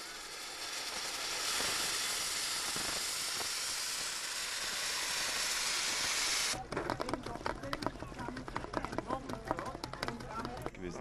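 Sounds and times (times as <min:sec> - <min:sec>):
steam hissing from valve: 0:00.0 - 0:06.6.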